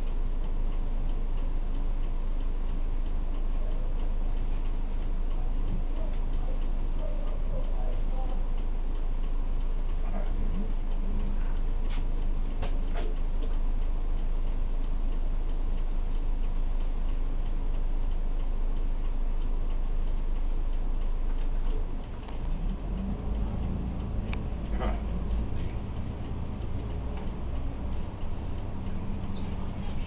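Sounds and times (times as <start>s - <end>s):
turn signal ticking: 0.0s - 30.0s
diesel bus engine idling: 19.6s - 30.0s.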